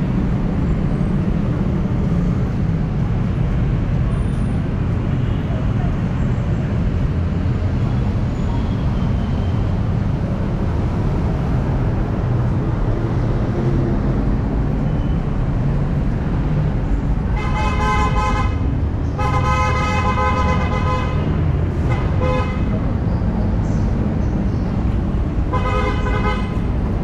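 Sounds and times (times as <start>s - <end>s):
street traffic rumble: 0.0s - 27.0s
vehicle horn: 17.3s - 18.6s, 19.2s - 21.3s, 21.9s - 22.8s, 25.5s - 26.6s.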